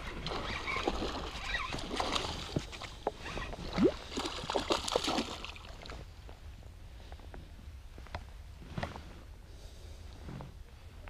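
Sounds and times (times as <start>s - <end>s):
water splashing and sloshing: 0.0s - 6.1s.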